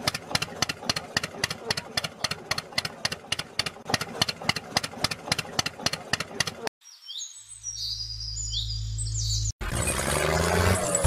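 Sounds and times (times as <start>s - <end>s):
tractor engine idling with knock: 0.0s - 6.7s
birds chirping: 6.4s - 11.0s.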